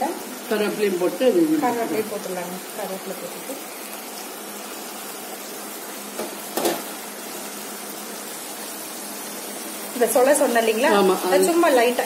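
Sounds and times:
food sizzling in a hot pan: 0.0 - 12.0.

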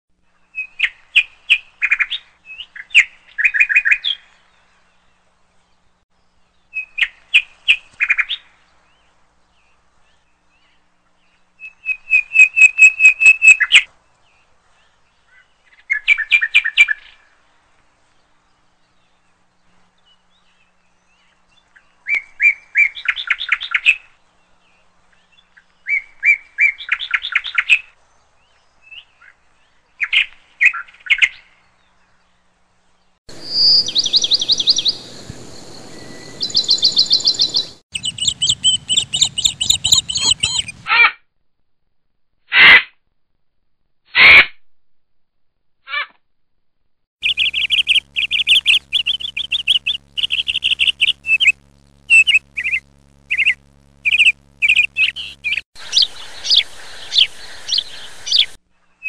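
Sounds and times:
swallow twittering chirps: 11.4 - 17.2, 33.3 - 40.9, 47.2 - 58.6.

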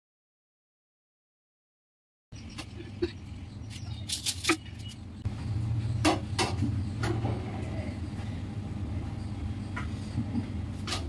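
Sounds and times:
steady low hum: 2.4 - 11.0.

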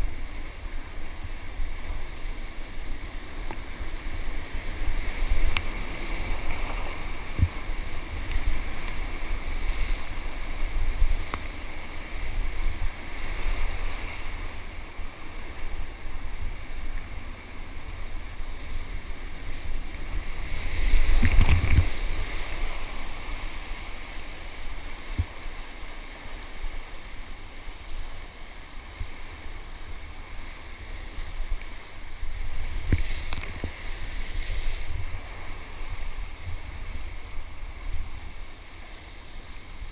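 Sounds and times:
waves breaking over boat: 0.0 - 39.9
whitewater rushing and splashing: 0.0 - 39.9
wind buffeting microphone: 3.8 - 14.8, 17.8 - 25.4.

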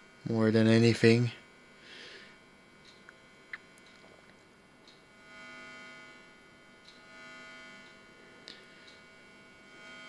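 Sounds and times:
amplifier humming and buzzing: 0.0 - 10.0.

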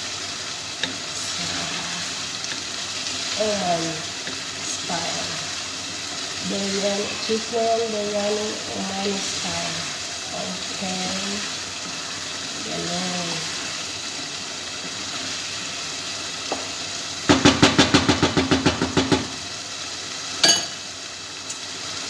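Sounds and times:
steady hiss: 0.0 - 17.3.

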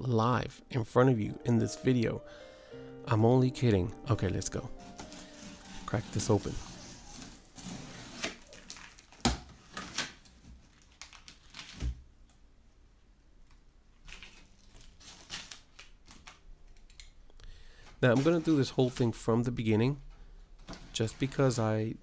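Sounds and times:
tape and cardboard crinkling: 4.7 - 12.4, 13.5 - 17.1, 17.8 - 19.3, 20.6 - 21.8
box cutter slicing tape: 4.9 - 8.5.

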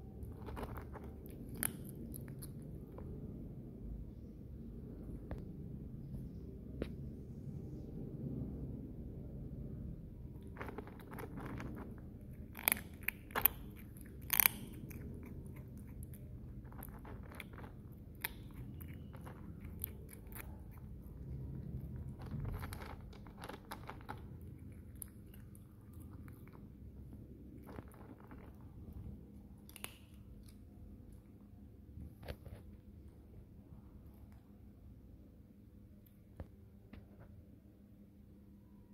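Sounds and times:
kitten crunching dry kibble: 0.0 - 3.3, 10.2 - 31.4.

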